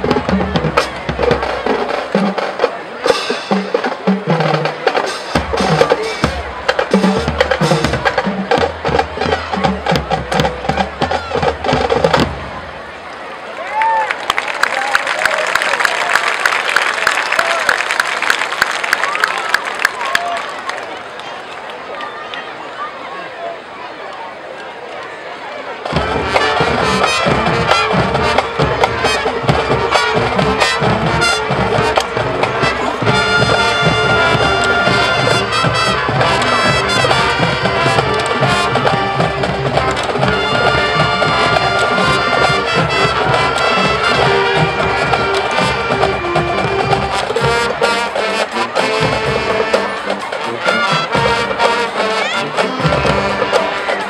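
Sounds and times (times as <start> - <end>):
drumline: 0.0 - 13.1, 25.8 - 54.0
marching band brass: 0.0 - 20.4, 25.6 - 54.0.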